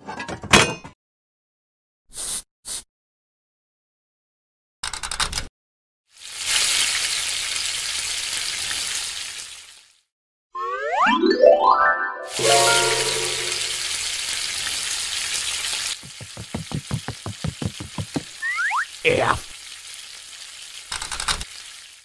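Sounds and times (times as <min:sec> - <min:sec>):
food sizzling in a frying pan: 0:06.1 - 0:10.1, 0:12.3 - 0:22.0.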